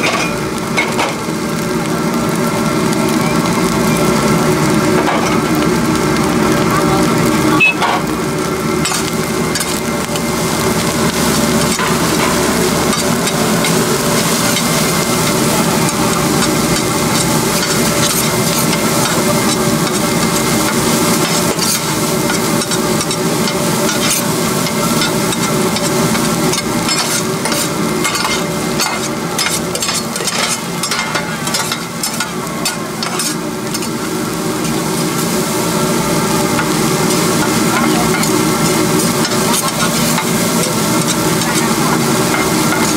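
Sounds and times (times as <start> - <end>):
rice sizzling in a wok: 0.0 - 42.9
metal spatula scraping a wok: 15.9 - 34.0.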